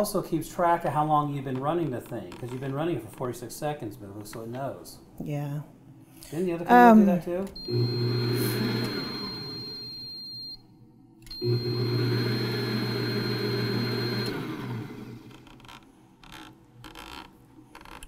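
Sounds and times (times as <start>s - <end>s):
stand mixer motor humming: 7.6s - 9.6s, 11.4s - 15.4s.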